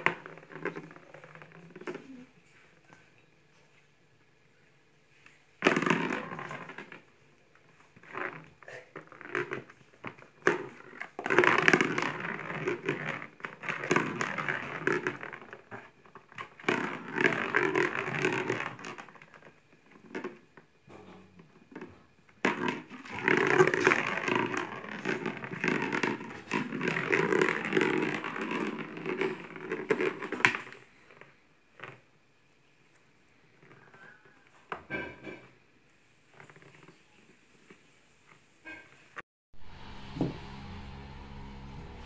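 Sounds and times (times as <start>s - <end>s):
claws scrabbling in plastic basin: 5.6s - 20.4s, 21.7s - 32.0s.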